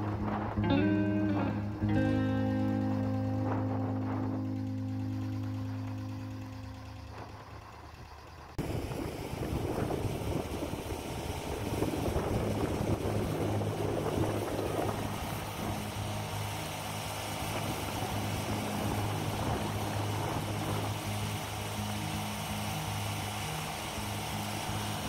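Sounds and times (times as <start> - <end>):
background music: 0.0 - 7.2
steady engine hum: 0.0 - 25.0
water jet spraying on metal drum: 8.6 - 25.0.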